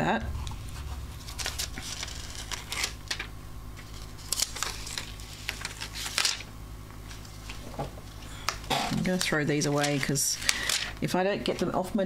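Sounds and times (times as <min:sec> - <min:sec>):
faint low hum: 0:00.0 - 0:12.0
paper rustling and crackling: 0:01.4 - 0:08.2, 0:09.0 - 0:11.7.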